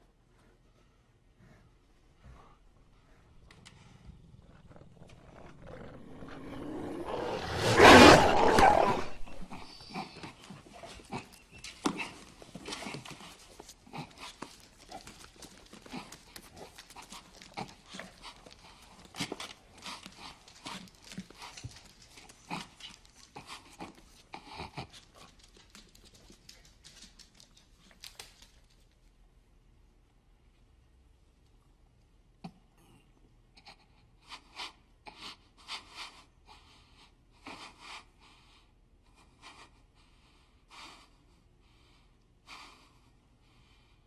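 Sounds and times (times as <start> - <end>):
dog growling and panting: 1.4 - 28.1.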